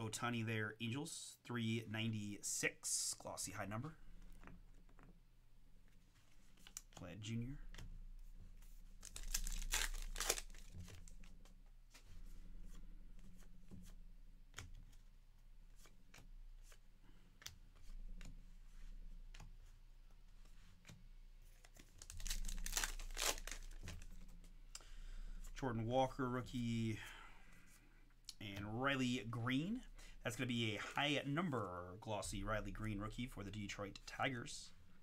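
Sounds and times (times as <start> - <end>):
cards being handled: 5.8 - 24.6
foil wrapper tearing and crinkling: 9.0 - 10.7, 22.0 - 24.0.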